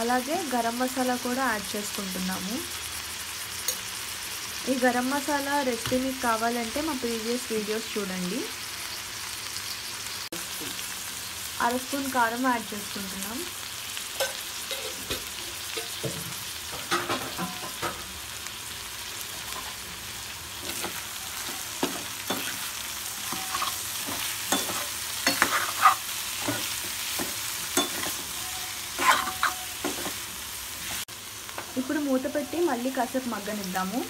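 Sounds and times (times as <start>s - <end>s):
vegetables sizzling in oil: 0.0s - 34.0s
metal spoon scraping a pan: 14.2s - 18.0s, 20.6s - 31.0s.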